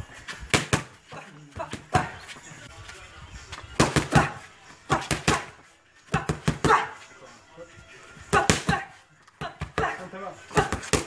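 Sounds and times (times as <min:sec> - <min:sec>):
boxing gloves smacking mitts: 0:00.5 - 0:02.2, 0:03.8 - 0:07.0, 0:08.3 - 0:11.0.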